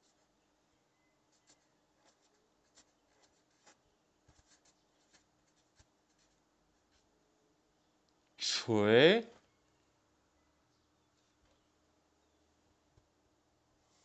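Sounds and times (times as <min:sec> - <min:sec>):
marker scratching on paper: 0:01.3 - 0:07.1.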